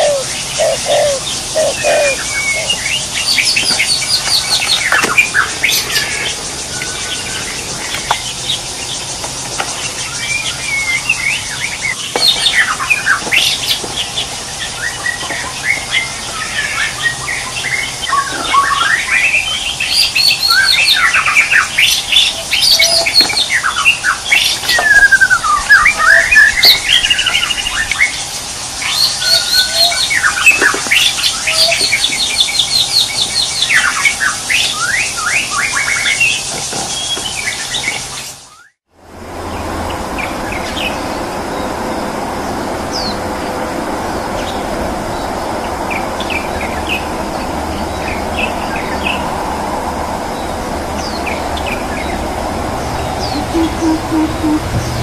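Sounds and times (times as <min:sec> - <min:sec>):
birds chirping and calling: 0:00.0 - 0:38.4, 0:50.4 - 0:55.0
steady rushing noise: 0:39.0 - 0:55.0.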